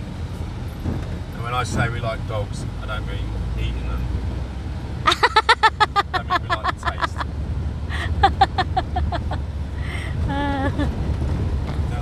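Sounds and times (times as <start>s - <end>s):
car driving rumble: 0.0s - 12.0s
high-pitched laughter: 7.9s - 11.0s.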